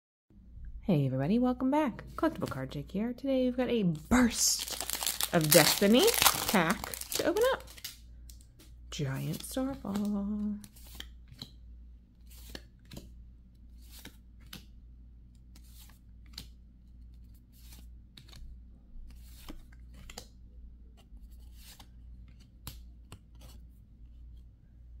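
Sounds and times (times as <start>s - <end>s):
cards swishing across a stack: 12.2s - 13.1s, 13.7s - 14.7s, 19.1s - 20.2s, 21.2s - 23.6s.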